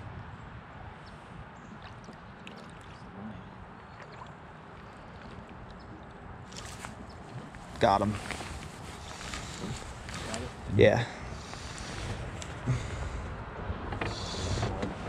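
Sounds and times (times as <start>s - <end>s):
paddle splash: 1.6s - 10.7s, 11.3s - 13.2s
river water washing: 1.6s - 13.3s.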